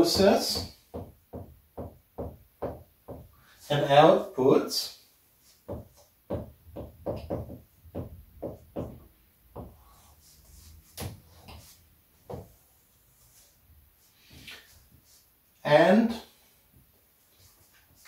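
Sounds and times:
marker writing on a whiteboard: 0:00.0 - 0:03.9, 0:05.4 - 0:15.8.

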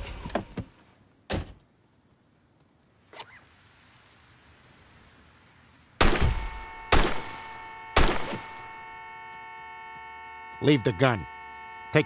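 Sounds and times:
background hiss: 0:00.0 - 0:08.9
loud gunshot: 0:06.0 - 0:08.8.

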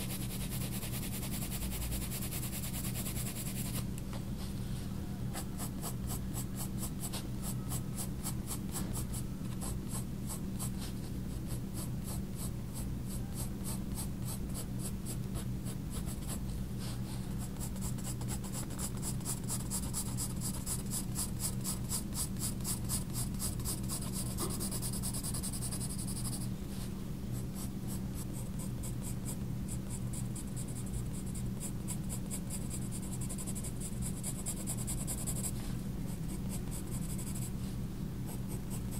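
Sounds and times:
pencil scratching on paper: 0:00.0 - 0:03.8, 0:17.5 - 0:26.4, 0:27.6 - 0:37.5
steady low hum: 0:00.0 - 0:38.9.

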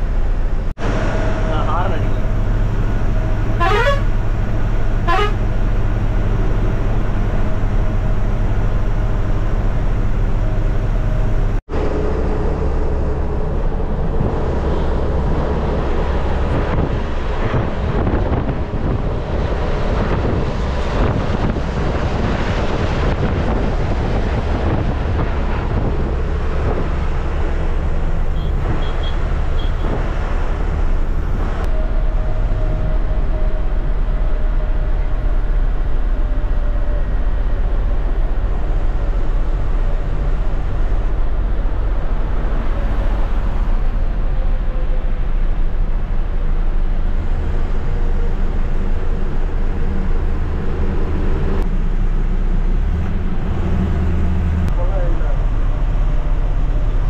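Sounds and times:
diesel engine running: 0:00.0 - 0:57.0
road noise: 0:00.0 - 0:57.0
vehicle horn blasts: 0:03.6 - 0:04.1, 0:05.0 - 0:05.4, 0:28.4 - 0:29.8.

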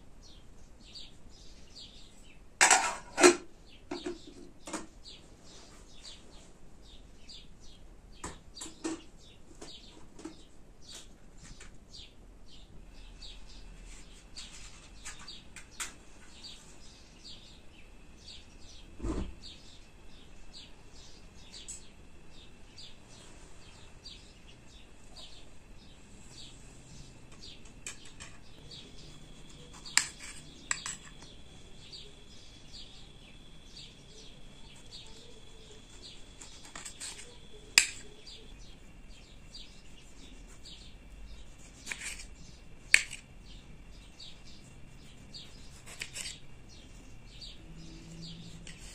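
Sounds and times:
small birds chirping: 0:00.2 - 0:48.9.

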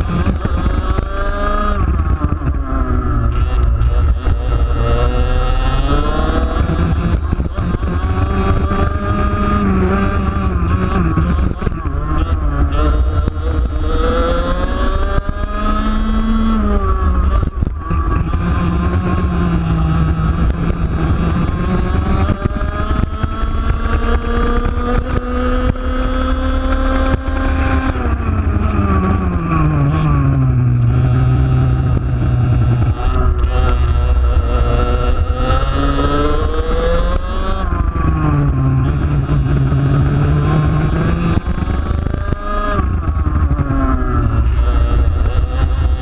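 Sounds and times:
kart engine revving: 0:00.0 - 0:46.0
heavy low rumble: 0:27.6 - 0:37.1.

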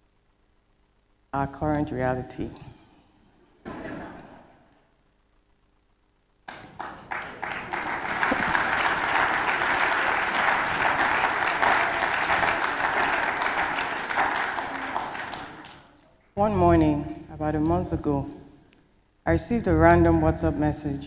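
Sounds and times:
audience applauding: 0:06.5 - 0:16.0.

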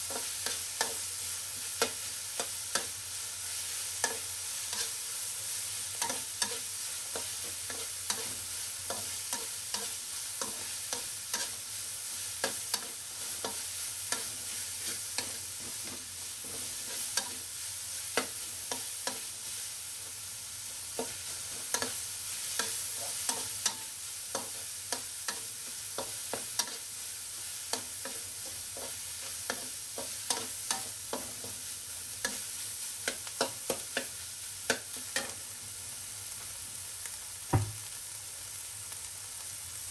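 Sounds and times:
meat sizzling in a wok: 0:00.0 - 0:39.9
metal spatula scraping a wok: 0:04.0 - 0:05.0, 0:06.0 - 0:11.6, 0:12.4 - 0:17.4.

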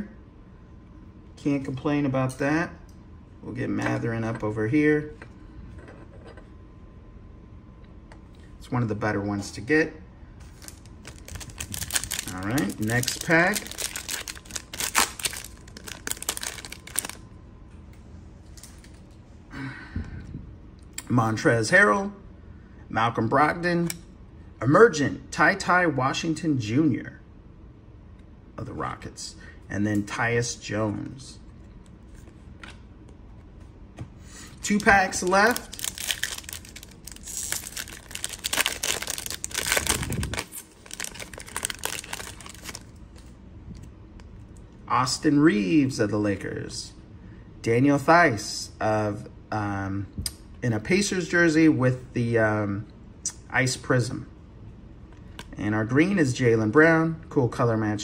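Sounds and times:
wrapper crinkling and tearing: 0:10.4 - 0:17.2, 0:34.6 - 0:43.3.

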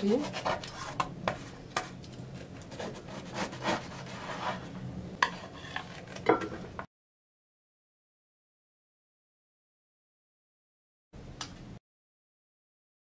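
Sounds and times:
knife cutting crunchy tart crust: 0:00.1 - 0:04.6.

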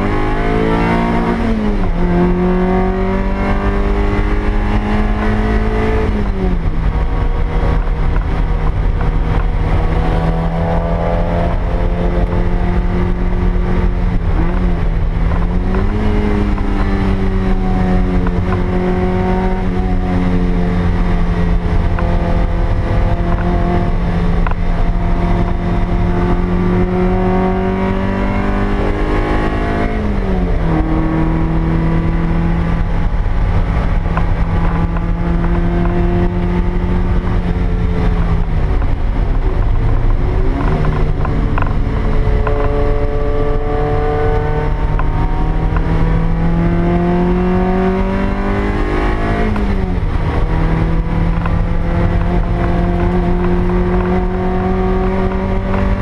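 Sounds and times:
car engine from inside cabin: 0:00.0 - 0:56.0
road and wind rumble: 0:00.0 - 0:56.0.

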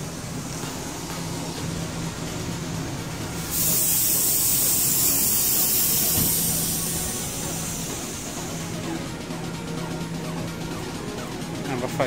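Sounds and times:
steady low hum: 0:00.0 - 0:12.0
compressed air hissing: 0:03.0 - 0:09.2.

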